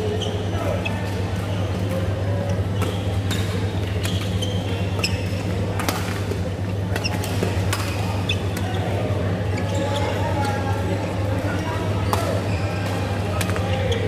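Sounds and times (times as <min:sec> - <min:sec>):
shoe squeaks on court floor: 0:02.7 - 0:05.4, 0:07.0 - 0:10.5.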